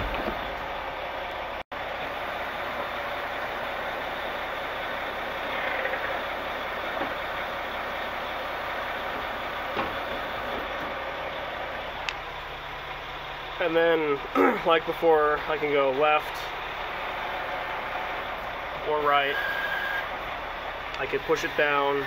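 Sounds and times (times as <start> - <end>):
diesel engine running: 0.0 - 22.0
hydraulics whirring: 0.0 - 22.0
metal chute clunks: 9.2 - 11.0.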